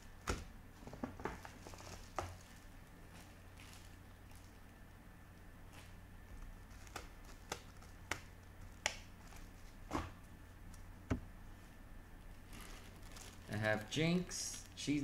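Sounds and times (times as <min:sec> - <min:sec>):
hands rummaging through toys: 0:00.8 - 0:04.6, 0:12.4 - 0:13.9.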